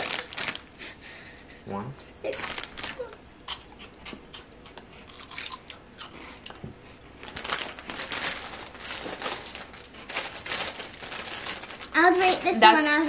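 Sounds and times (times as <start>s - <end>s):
crunchy snack being chewed: 2.4s - 6.2s.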